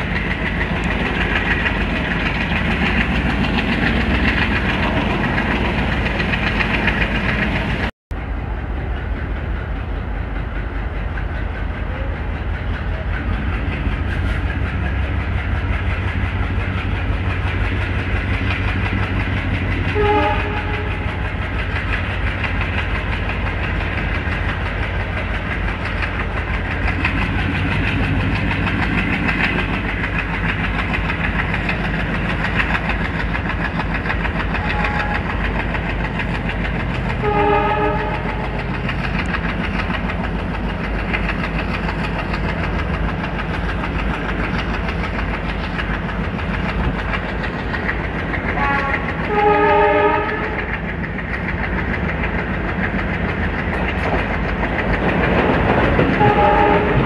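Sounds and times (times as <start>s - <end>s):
diesel locomotive chugging: 0.0s - 57.0s
passing train: 0.0s - 57.0s
wheels clacking over rail joints: 0.0s - 57.0s
multi-tone locomotive horn: 19.8s - 21.3s, 34.5s - 35.4s, 37.2s - 38.6s, 48.6s - 50.8s, 56.2s - 57.0s.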